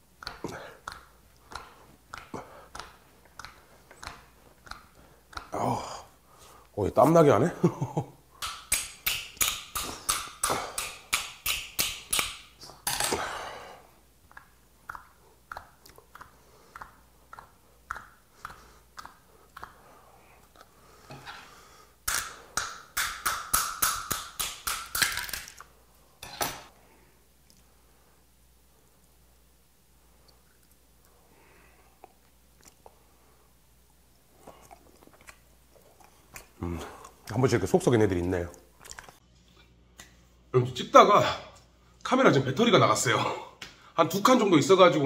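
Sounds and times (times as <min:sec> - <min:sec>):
soft chewing ticks: 0:32.0 - 0:33.0.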